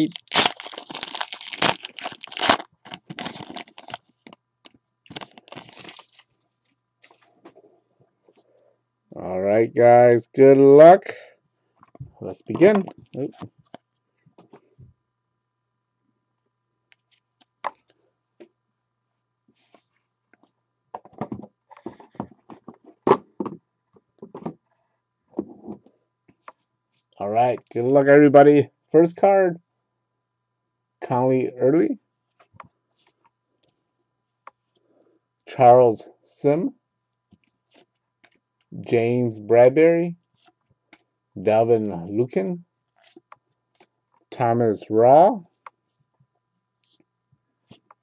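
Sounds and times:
foil wrapper crinkling: 0.0 - 4.4, 5.1 - 6.4.

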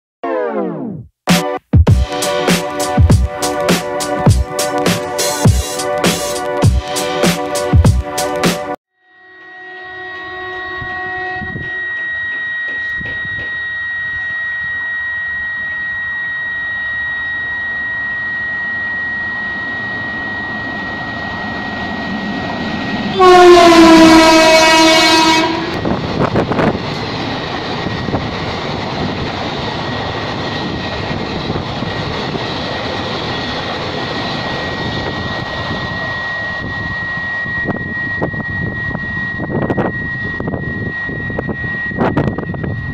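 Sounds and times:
locomotive horn blast: 2.1 - 13.4, 23.0 - 26.1.

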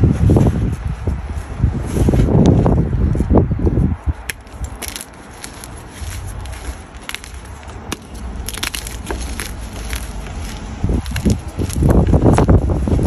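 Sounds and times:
wind rumble on microphone: 0.0 - 13.0
chalk crunching by hand: 4.2 - 13.0.

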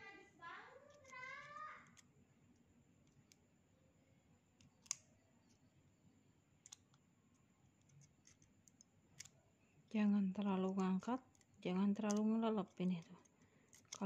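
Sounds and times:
small hand tool clicking: 4.6 - 5.1, 11.2 - 12.4, 13.0 - 14.0.

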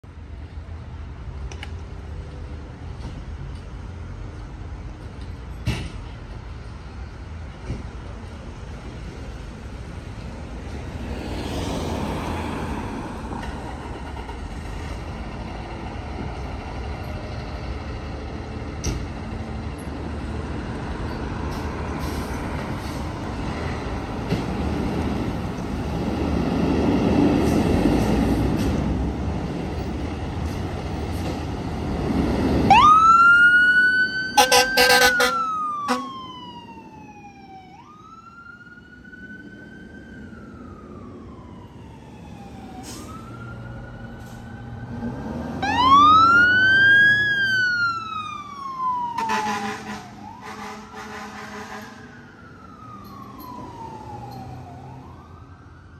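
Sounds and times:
siren rising in pitch: 32.7 - 55.9.

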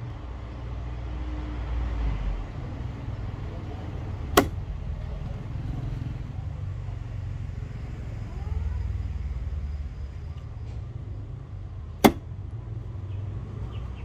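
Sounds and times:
sharp knock: 4.4 - 4.6, 12.0 - 12.2.

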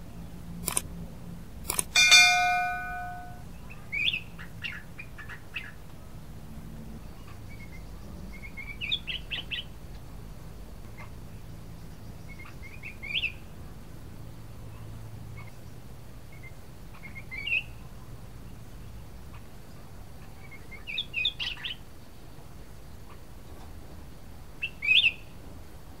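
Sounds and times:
bright ringing chime: 2.0 - 3.4
bird chirping song: 2.0 - 5.8.

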